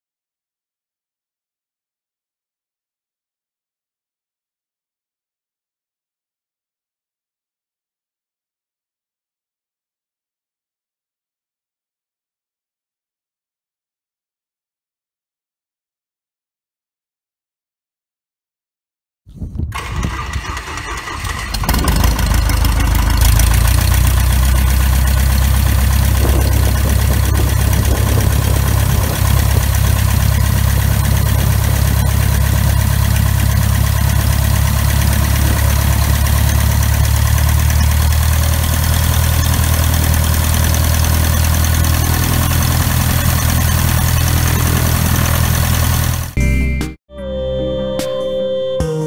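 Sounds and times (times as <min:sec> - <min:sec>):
piston aircraft engine starting: 0:19.7 - 0:46.4.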